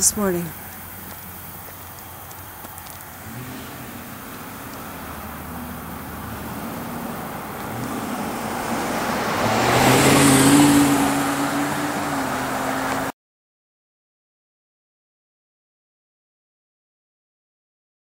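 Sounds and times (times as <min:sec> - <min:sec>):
car passing by: 0:00.0 - 0:13.1.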